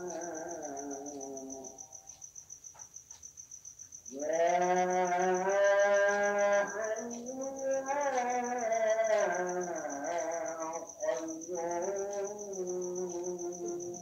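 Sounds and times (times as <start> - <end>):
crickets chirping: 0.0 - 14.0
man chanting over loudspeakers: 4.2 - 13.4.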